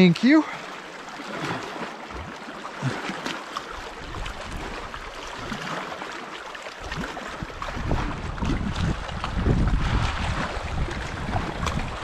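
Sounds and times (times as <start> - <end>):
small waves lapping on rocks: 0.0 - 12.0
wind on microphone: 3.9 - 5.6, 6.8 - 12.0.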